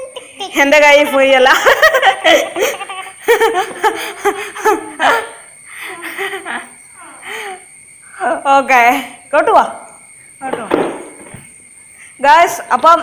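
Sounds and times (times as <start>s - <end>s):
children laughing and giggling: 0.0s - 7.7s.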